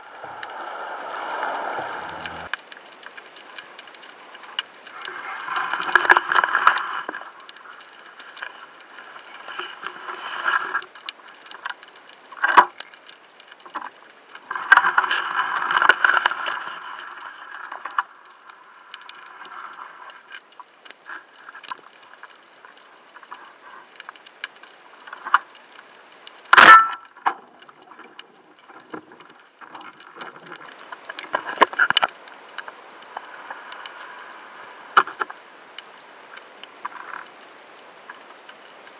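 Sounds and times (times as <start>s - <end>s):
rushing water noise: 0.0s - 2.6s
underwater clicks and crackles: 0.0s - 38.9s.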